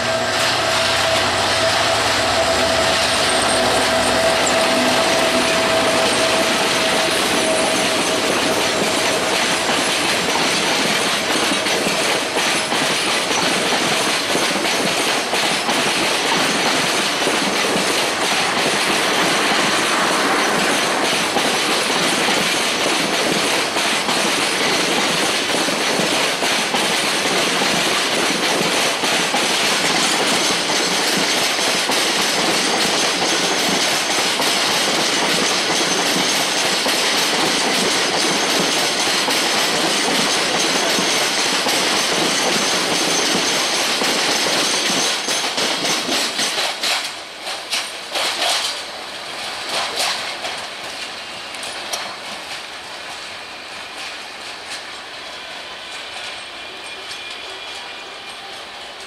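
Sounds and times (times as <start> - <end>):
train wheels on rails: 0.0 - 59.0
wheels clicking over rail joints: 21.1 - 48.9, 49.6 - 53.3.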